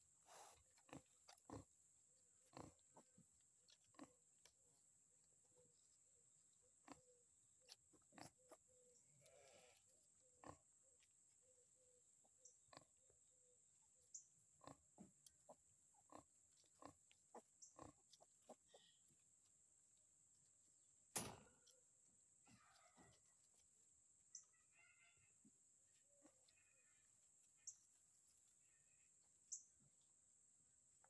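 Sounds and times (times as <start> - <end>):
pigs grunting: 2.4 - 3.1, 10.4 - 10.7, 15.5 - 19.0.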